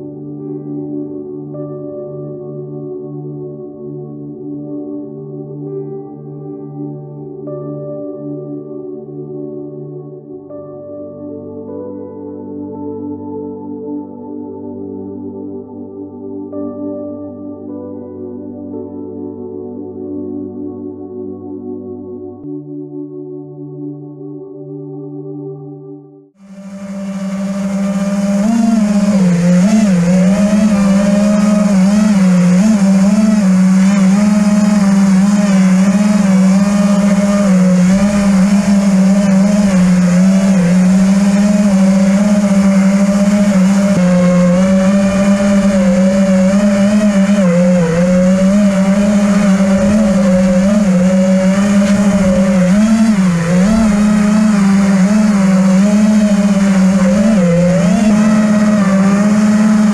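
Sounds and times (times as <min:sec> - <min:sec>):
drone propellers buzzing: 0:26.4 - 0:59.9.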